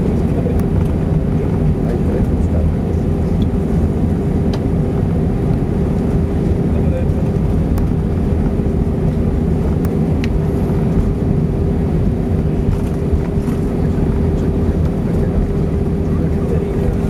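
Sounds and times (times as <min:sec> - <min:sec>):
aircraft engine rumble: 0:00.0 - 0:17.0
mid-pitched hum: 0:00.0 - 0:17.0.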